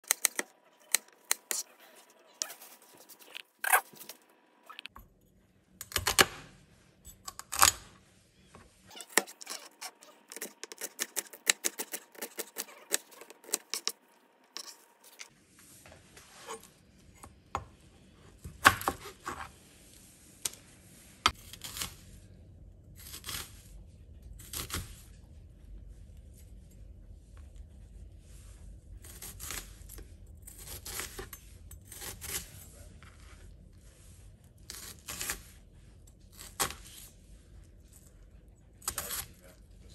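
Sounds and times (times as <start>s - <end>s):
knife chopping on plastic board: 18.4s - 19.5s.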